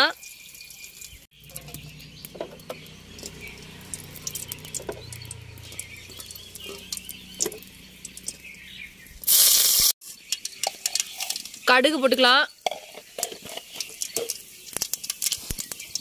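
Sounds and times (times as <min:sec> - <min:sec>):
loud burst of hiss: 0:09.2 - 0:10.0.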